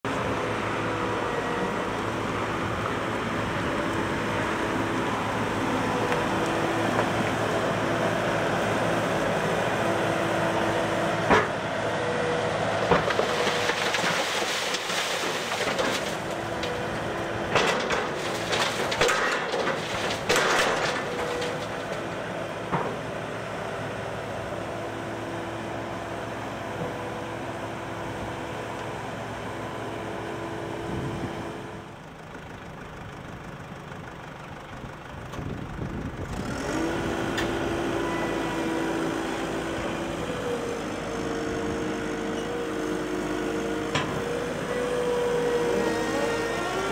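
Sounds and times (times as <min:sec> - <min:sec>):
diesel engine humming: 0:00.0 - 0:46.9
earth and stones clattering out: 0:13.0 - 0:16.8.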